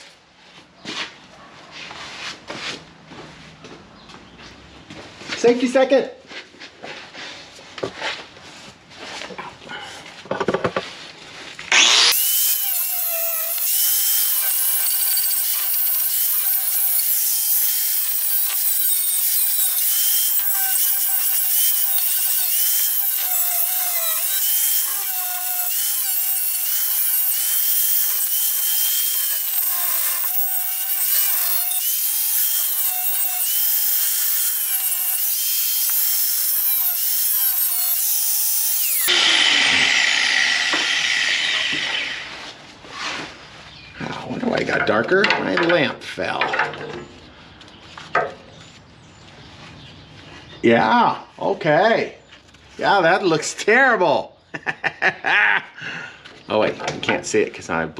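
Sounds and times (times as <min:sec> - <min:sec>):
power grinder grinding metal: 0:11.7 - 0:42.5.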